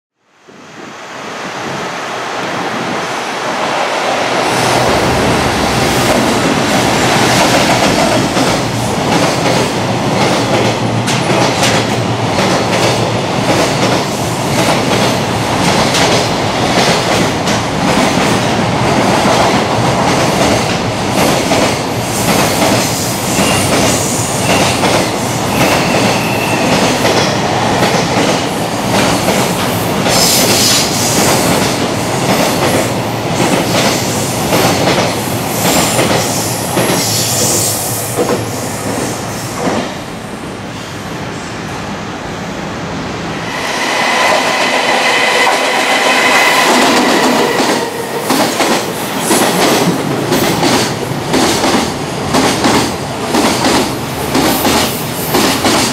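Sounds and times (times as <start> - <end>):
train wheels rushing on rails: 0.4 - 55.9
clickety-clack over rail joints: 7.2 - 37.2, 38.1 - 40.0, 44.5 - 55.9.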